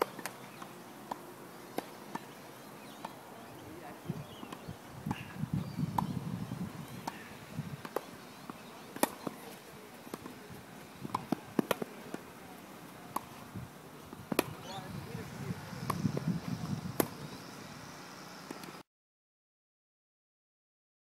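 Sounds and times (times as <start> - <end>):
tennis ball bounces: 0.0 - 3.2, 4.4 - 5.3, 5.9 - 6.1, 7.0 - 12.3, 13.1 - 13.4, 14.1 - 15.2, 15.8 - 16.4, 17.0 - 17.2
racquet striking tennis ball: 5.9 - 6.1, 7.0 - 10.4, 11.1 - 12.3, 13.1 - 13.4, 14.1 - 15.2, 15.8 - 16.3, 17.0 - 17.2.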